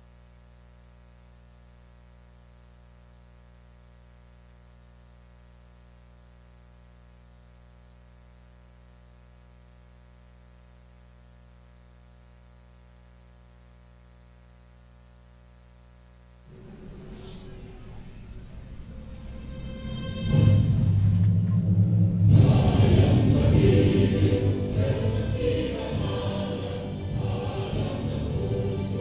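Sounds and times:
faint mains hum: 0:00.0 - 0:29.0
loud music: 0:16.5 - 0:29.0.

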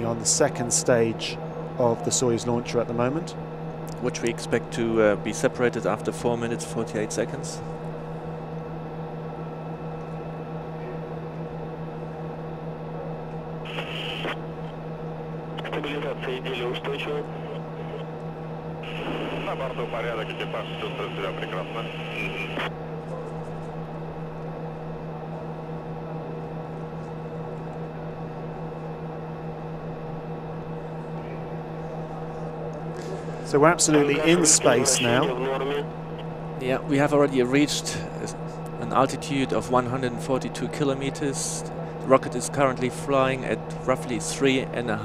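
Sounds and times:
low cabin audio drone: 0:00.0 - 0:45.0.

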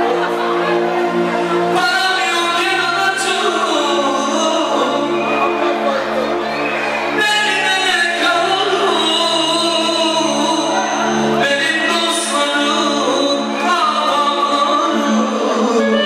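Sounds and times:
loud amplified band music: 0:00.0 - 0:16.0
man singing into microphone: 0:00.0 - 0:16.0.

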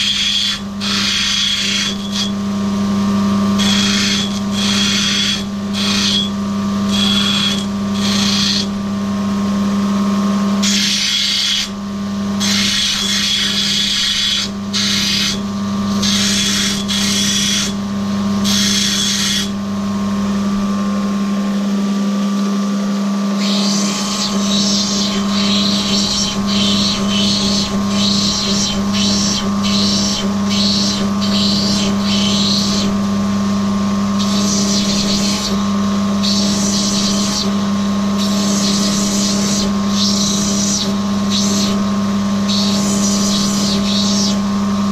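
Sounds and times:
stone grinding against wheel: 0:00.0 - 0:02.4, 0:03.6 - 0:06.3, 0:06.9 - 0:08.7, 0:10.6 - 0:11.7, 0:12.4 - 0:17.8, 0:23.4 - 0:33.0, 0:34.2 - 0:35.6, 0:36.2 - 0:37.5
grinding machine motor humming: 0:00.0 - 0:44.9.

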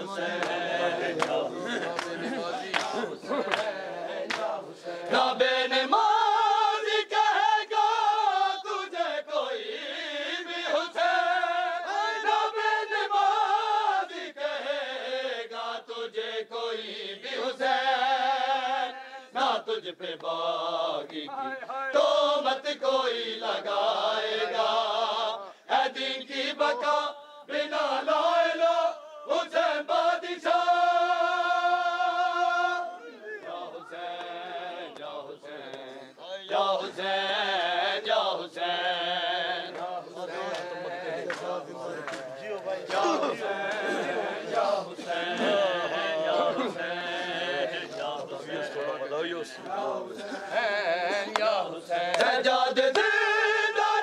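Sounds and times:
men chanting a lament: 0:00.0 - 0:54.0
hands slapping chests: 0:00.3 - 0:05.2, 0:21.0 - 0:21.3, 0:33.4 - 0:35.9, 0:39.7 - 0:44.7, 0:51.3 - 0:53.2.

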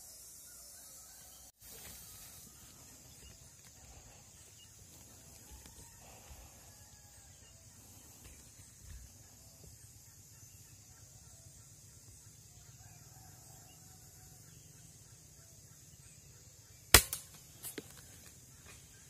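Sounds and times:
rifle shot: 0:16.9 - 0:17.5.

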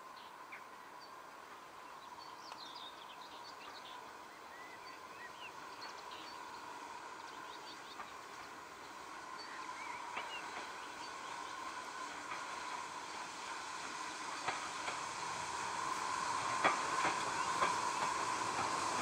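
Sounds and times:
distant steam train: 0:00.0 - 0:19.0
small birds chirping: 0:01.8 - 0:13.3.

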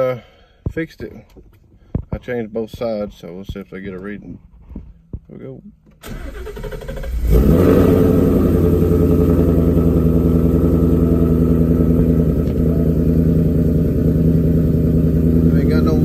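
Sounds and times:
car starter cranking: 0:05.9 - 0:07.7
engine firing up and idling fast: 0:06.0 - 0:16.0.

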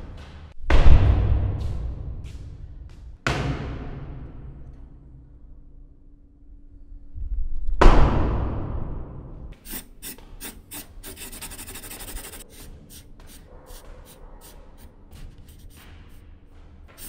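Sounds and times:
dry scratching and scraping: 0:09.6 - 0:16.2.

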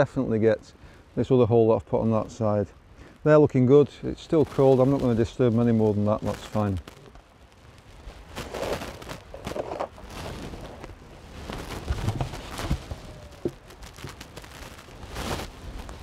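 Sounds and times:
knocks bumps and rustles: 0:08.4 - 0:16.0.

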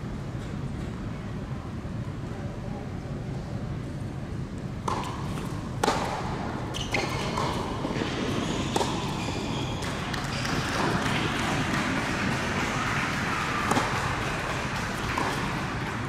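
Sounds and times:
low hall noise: 0:00.0 - 0:16.0
racket hitting ball: 0:04.8 - 0:16.0
tennis ball bounces: 0:04.8 - 0:16.0.

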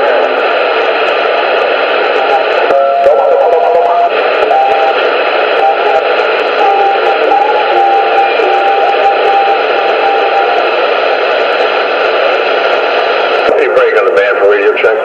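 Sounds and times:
radio static hiss: 0:00.0 - 0:15.0
warbling tones: 0:02.1 - 0:11.7
garbled distorted voices: 0:02.2 - 0:11.9, 0:13.5 - 0:15.0.

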